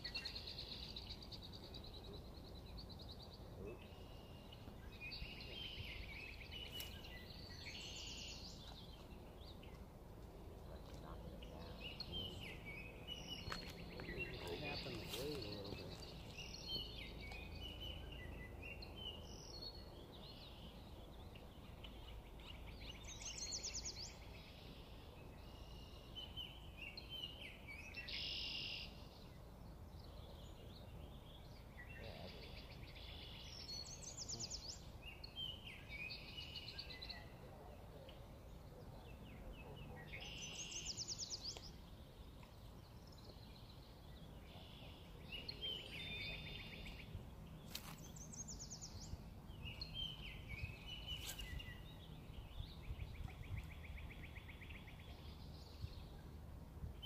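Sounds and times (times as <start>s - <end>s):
songbirds singing: 0.0s - 57.0s.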